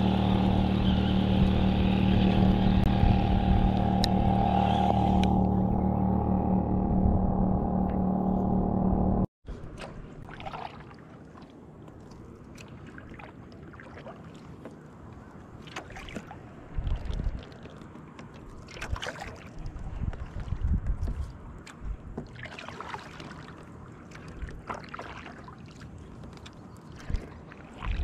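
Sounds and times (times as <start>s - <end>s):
loud steady noise with low hum: 0.0s - 9.3s
kayak paddle splashing water: 9.6s - 28.0s.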